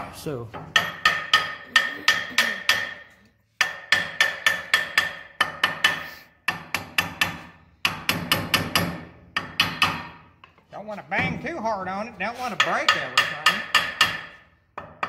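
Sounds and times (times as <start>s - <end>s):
hammer ringing on metal housing: 12.6s - 14.4s.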